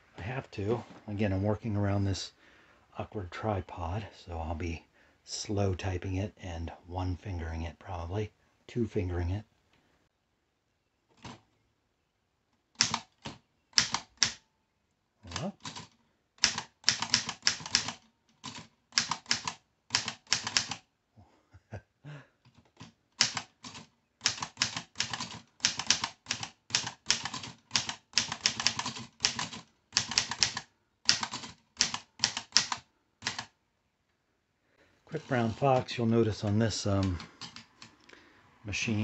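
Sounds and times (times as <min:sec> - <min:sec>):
typewriter keys clacking: 0:15.3 - 0:20.8, 0:22.8 - 0:33.5.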